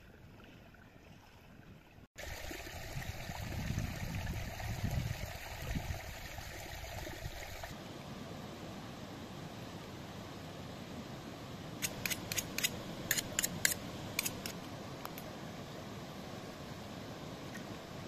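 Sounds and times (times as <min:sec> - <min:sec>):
running water: 0:00.0 - 0:07.8.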